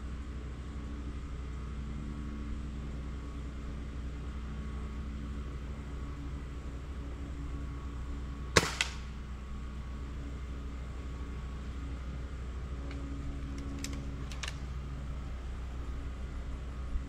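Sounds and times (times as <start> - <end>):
low background hum: 0.0 - 17.0
air rifle shot: 8.6 - 9.2.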